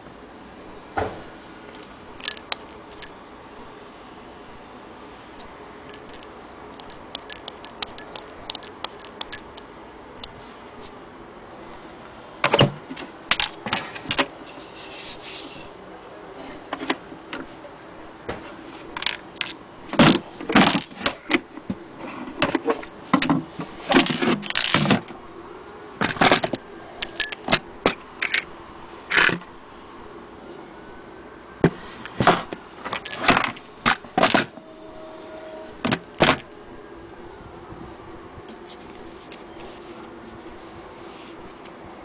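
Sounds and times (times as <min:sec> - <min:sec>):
brief scrape: 0:14.5 - 0:15.7.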